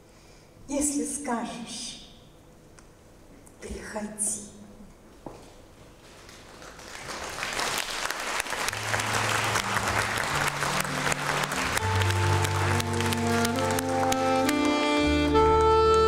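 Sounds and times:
audience applauding: 6.0s - 16.0s
music with low held notes: 8.8s - 16.0s.

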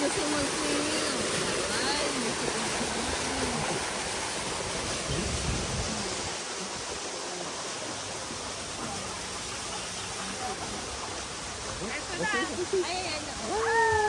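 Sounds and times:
stream splashing over rocks: 0.0s - 14.0s.

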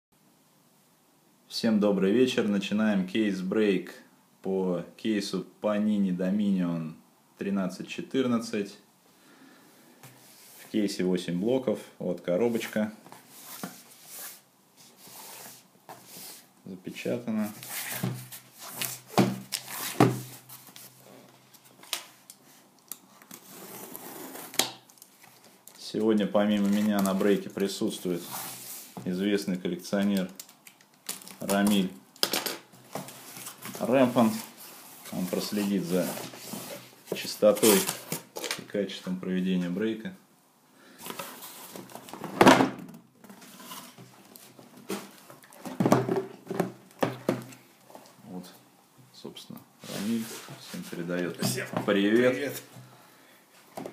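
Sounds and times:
box set down on table: 41.1s - 43.4s.

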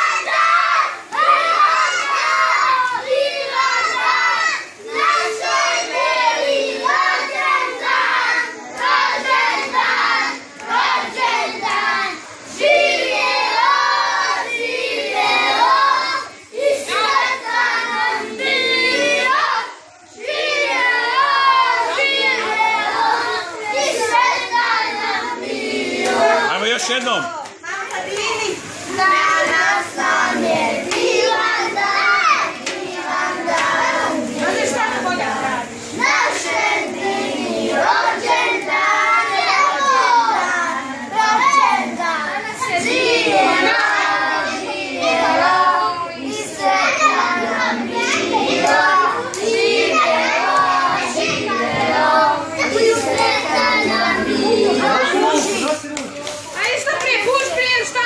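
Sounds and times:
children and adults singing: 0.0s - 58.0s
hands clapping: 30.9s - 31.1s, 32.6s - 32.9s, 55.9s - 57.2s.

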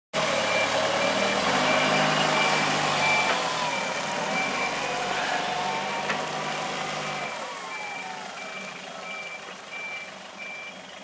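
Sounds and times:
forklift engine running: 0.2s - 11.0s
reversing alarm beeps: 0.4s - 5.1s, 7.1s - 10.8s.

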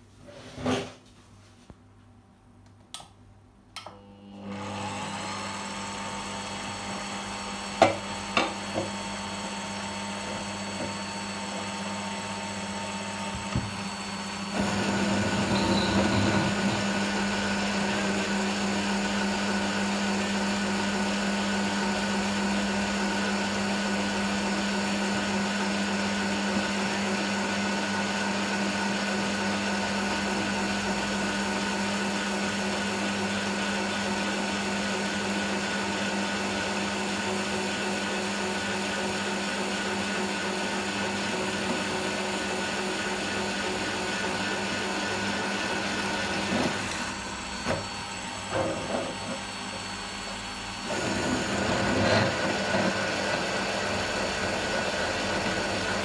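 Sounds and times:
drill press drilling into metal: 13.1s - 18.9s.

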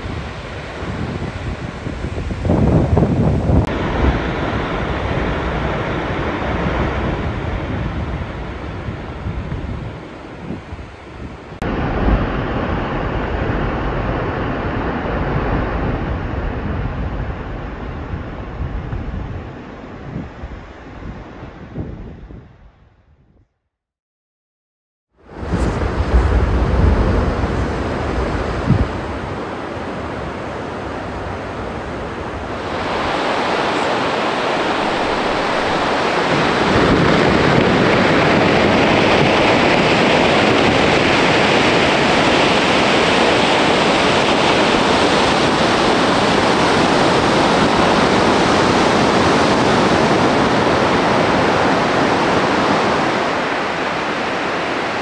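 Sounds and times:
ice collapsing rumble: 25.4s - 28.8s.

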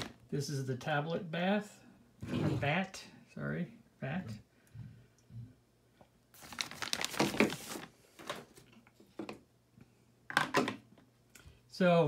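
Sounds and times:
plastic bag crinkling: 6.3s - 8.5s.

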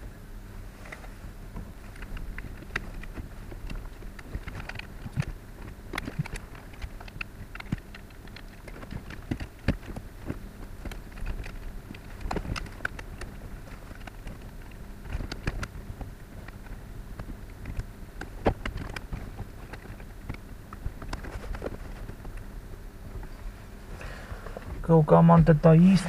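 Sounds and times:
low steady hum: 0.0s - 26.0s
plastic parts clicking and knocking: 2.0s - 15.8s, 16.4s - 22.4s.

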